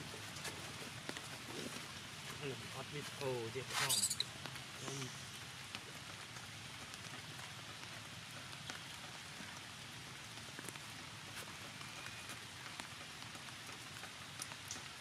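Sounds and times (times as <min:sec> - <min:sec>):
light rain falling: 0:00.0 - 0:15.0.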